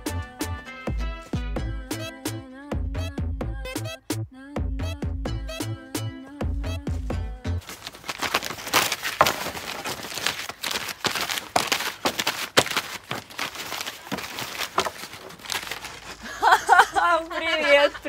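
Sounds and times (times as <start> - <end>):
paper ripping and crumpling: 7.6 - 16.8.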